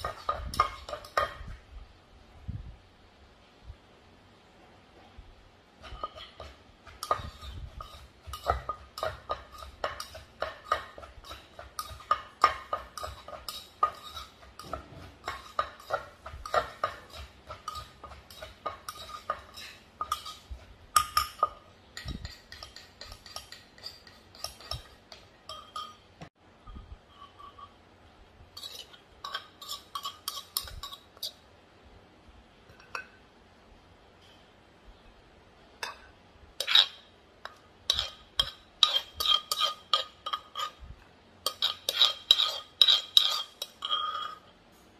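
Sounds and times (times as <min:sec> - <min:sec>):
spoon clinking against mortar: 0:00.0 - 0:01.5, 0:05.8 - 0:26.1, 0:28.6 - 0:31.4, 0:35.8 - 0:40.8, 0:41.4 - 0:44.5.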